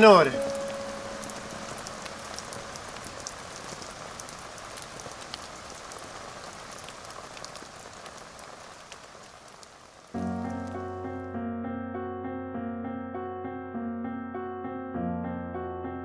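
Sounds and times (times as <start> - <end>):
steady rain: 0.0 - 11.4.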